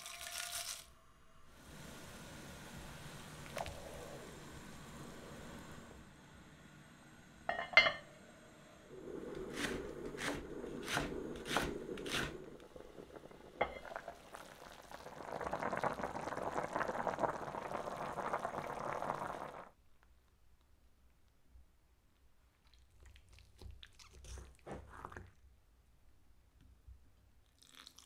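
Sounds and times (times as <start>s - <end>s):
broth bubbling: 3.0s - 5.8s, 8.9s - 19.7s
lid clanking onto pot: 7.5s - 8.0s.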